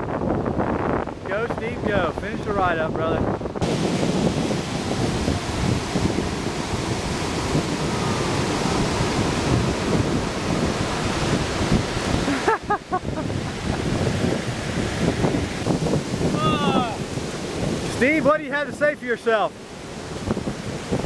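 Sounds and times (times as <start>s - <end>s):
wind buffeting microphone: 0.0s - 21.0s
surf breaking on beach: 0.4s - 21.0s
person's voice: 16.4s - 17.0s.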